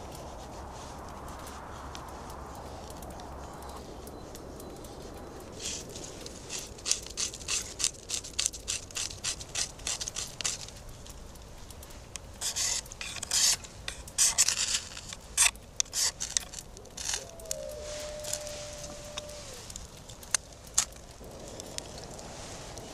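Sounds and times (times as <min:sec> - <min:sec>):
knife scraping wood: 0:12.4 - 0:17.2.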